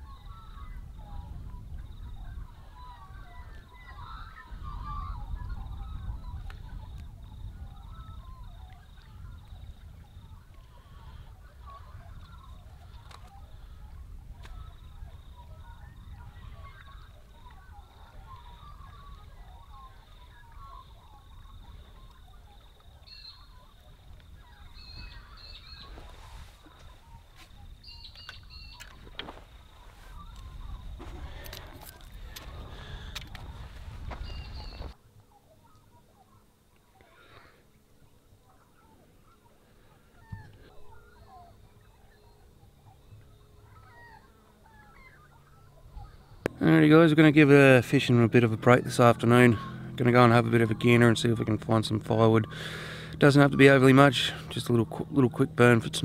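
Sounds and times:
wind rumble on microphone: 0:00.0 - 0:35.0
small birds chirping: 0:00.0 - 0:56.0.

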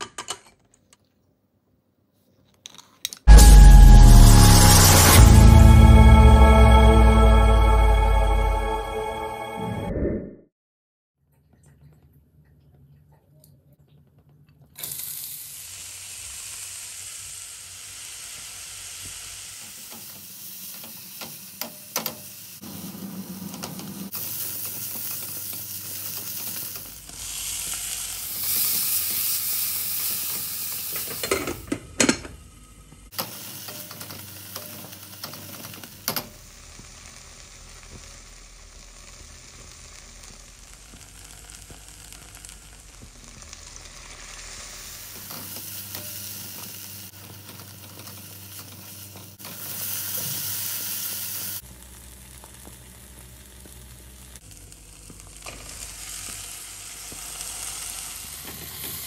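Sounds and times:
vegetables sizzling in hot oil: 0:14.8 - 0:31.7, 0:32.4 - 0:59.0.

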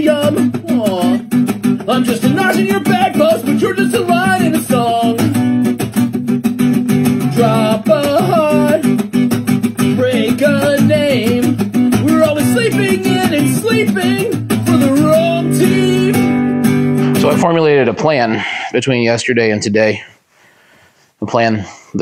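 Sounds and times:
person singing: 0:00.0 - 0:05.6, 0:07.1 - 0:09.1, 0:09.7 - 0:17.4
strummed guitar: 0:00.0 - 0:18.2.

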